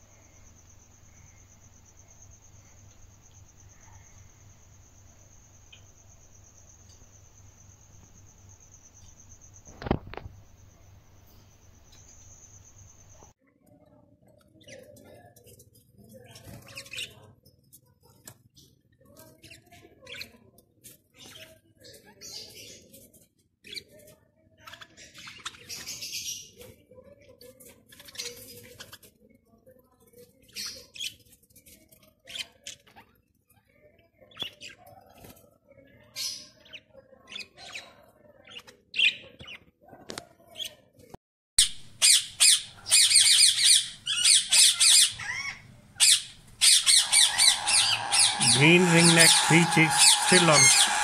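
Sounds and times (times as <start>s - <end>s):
budgerigars chirping: 42.0s - 51.0s
parakeet chicks squawking: 42.0s - 51.0s.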